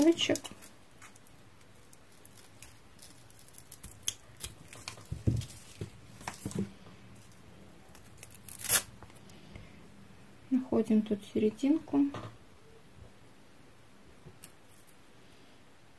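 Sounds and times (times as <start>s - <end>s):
hook and loop tape ripping: 8.1s - 8.9s.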